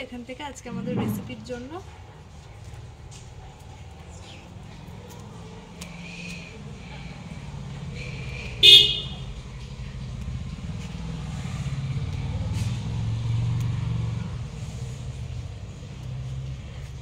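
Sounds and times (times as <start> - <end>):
vehicle engine rumbling past: 0.3 - 17.0
short horn toot: 8.6 - 9.2.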